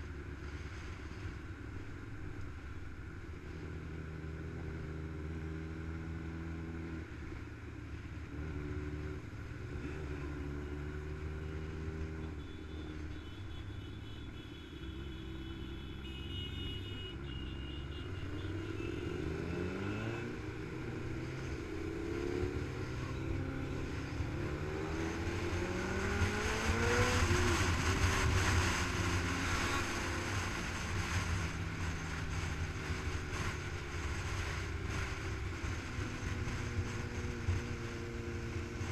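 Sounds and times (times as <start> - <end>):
motorcycle engine accelerating: 18.3 - 38.9.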